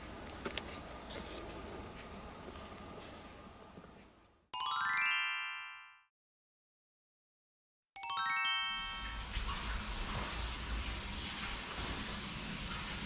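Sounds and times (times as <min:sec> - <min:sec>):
falling bell-like chime: 0:04.6 - 0:06.1, 0:08.0 - 0:09.4.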